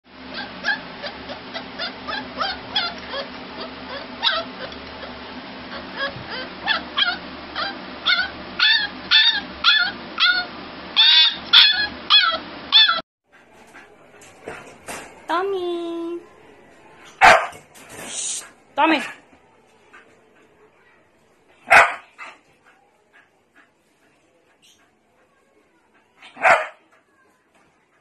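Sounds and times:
puppy whining and yipping: 0.3s - 13.0s.

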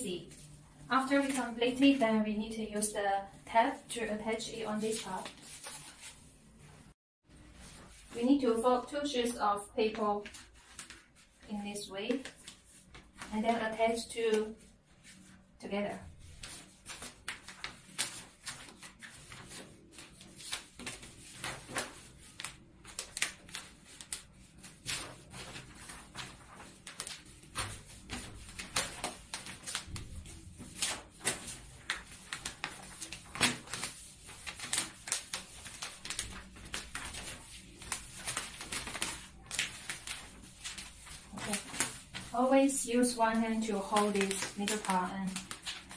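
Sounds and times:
stiff paper crinkling: 10.2s - 11.5s, 16.3s - 45.9s.

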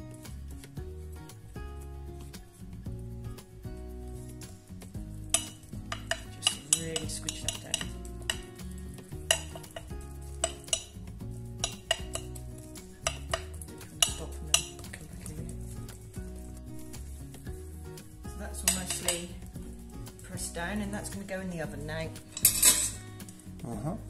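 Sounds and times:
soft background music: 0.0s - 24.0s
knife tapping and scraping glass dish: 5.3s - 15.5s, 18.6s - 19.4s.

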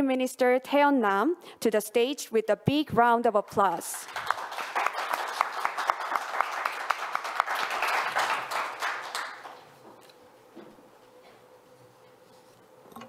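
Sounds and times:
audience applause: 4.0s - 9.6s.

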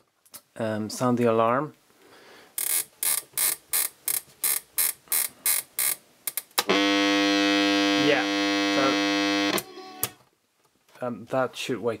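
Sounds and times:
alarm electric buzz: 6.6s - 10.2s.

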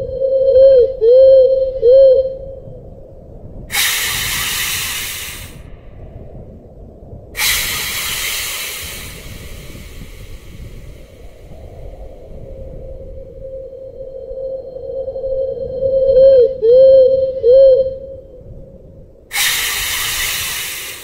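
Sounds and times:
long hisses: 3.7s - 5.7s, 7.4s - 12.1s, 19.3s - 21.0s.

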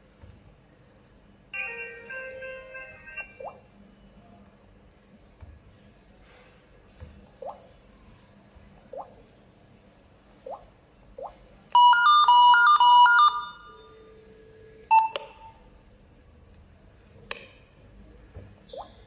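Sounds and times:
intercom electronic ringtone: 1.6s - 3.5s, 11.8s - 14.2s.

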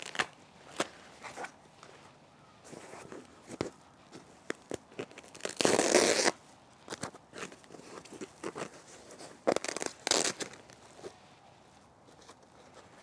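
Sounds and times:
plastic wrapping crinkling: 0.0s - 0.9s, 3.0s - 11.2s
polyester fluff rustling: 7.3s - 11.7s.

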